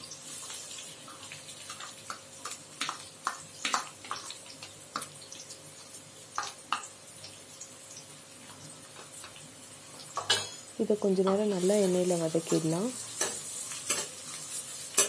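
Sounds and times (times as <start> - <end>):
hot oil sizzling: 0.0 - 15.0
spatula tapping bowl and pan: 1.7 - 5.2, 6.3 - 7.0, 10.1 - 10.6, 11.2 - 11.6, 12.4 - 14.2.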